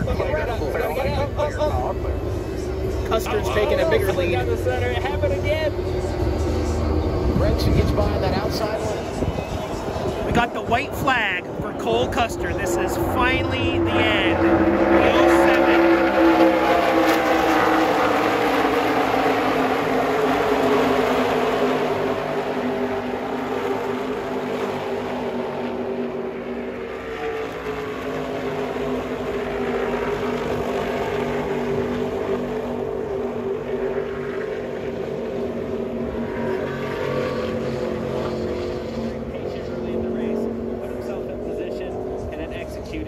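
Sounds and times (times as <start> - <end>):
race car engines passing: 0.0 - 43.0.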